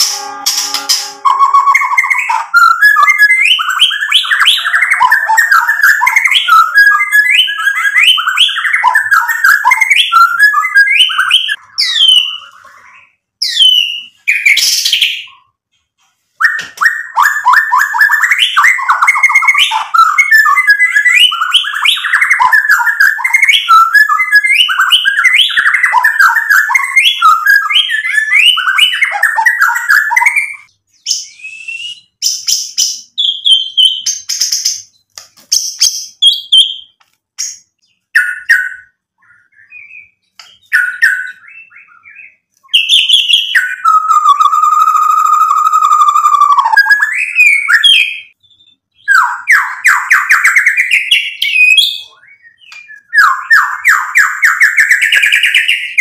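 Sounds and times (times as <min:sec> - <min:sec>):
bird singing rapid song: 0:00.0 - 0:15.6, 0:16.4 - 0:56.0
sharp rising whistles: 0:31.2 - 0:32.2.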